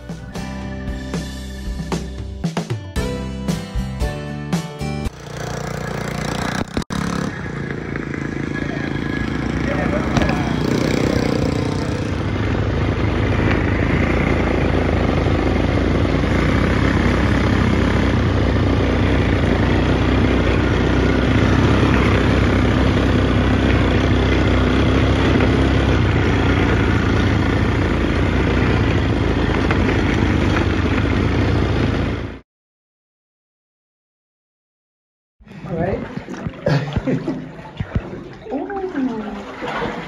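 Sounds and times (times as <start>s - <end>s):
quad bike engine running: 5.0s - 32.4s.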